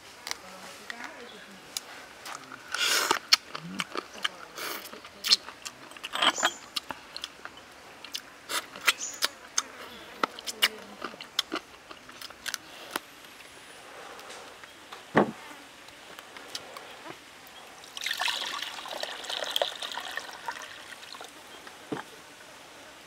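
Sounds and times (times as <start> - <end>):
person chewing with mouth clicks: 2.2 - 13.0
heavy thump: 15.1 - 15.4.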